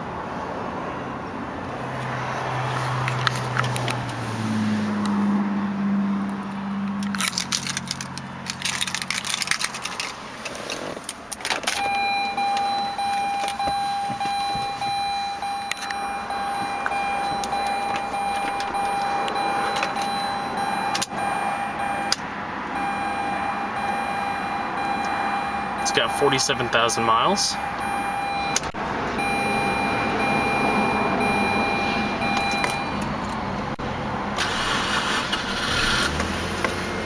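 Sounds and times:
keys jangling: 7.0s - 10.8s
car dashboard warning tone: 11.8s - 33.1s.

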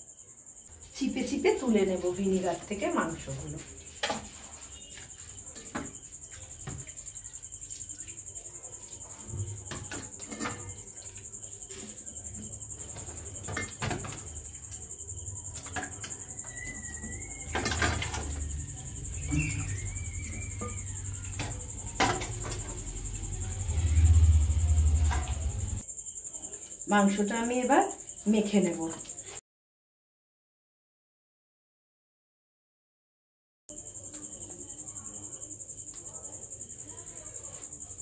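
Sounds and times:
cricket trilling: 0.0s - 29.4s, 33.7s - 38.0s.

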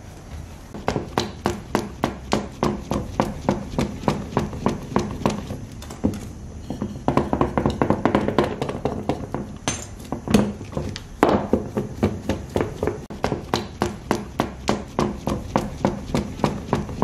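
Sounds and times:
rapid knocking on hard surface: 0.8s - 5.6s, 6.8s - 17.0s.

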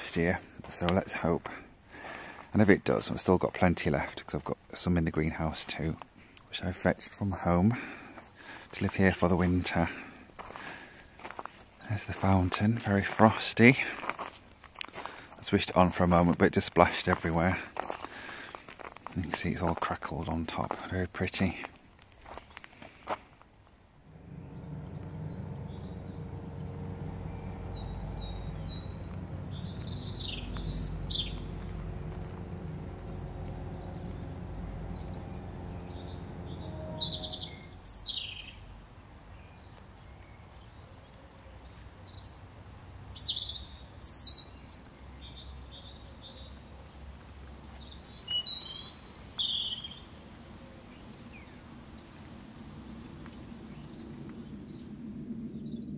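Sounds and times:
low hum: 23.9s - 39.7s, 49.7s - 55.9s
robin singing: 24.1s - 40.2s.

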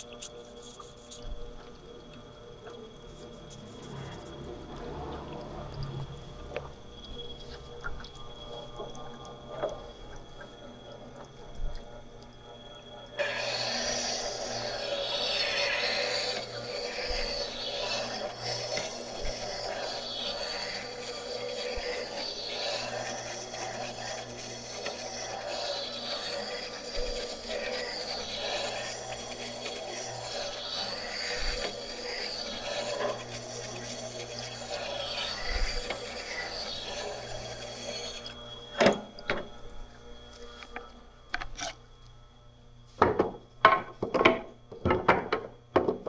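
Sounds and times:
steel grinding on stone wheel: 0.0s - 6.2s, 13.1s - 39.2s, 40.4s - 41.8s
motor humming: 0.0s - 45.2s.

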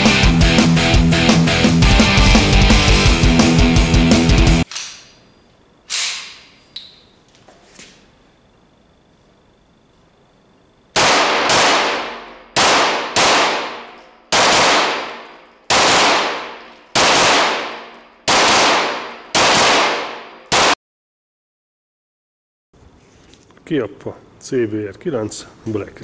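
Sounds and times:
gunshots echoing indoors: 10.9s - 20.8s.

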